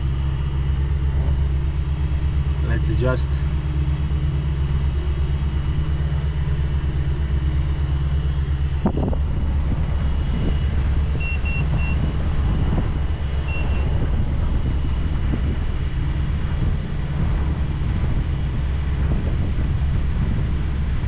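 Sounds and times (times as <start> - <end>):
diesel engines droning: 0.0 - 21.0
short high electronic beeps: 13.5 - 13.9.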